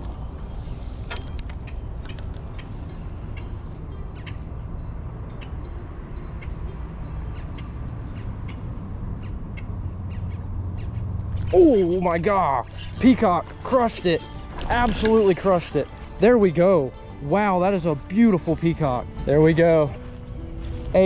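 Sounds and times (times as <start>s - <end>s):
fishing line hiss: 0.0s - 1.5s, 11.3s - 16.2s
fishing reel clicks: 11.2s - 16.2s.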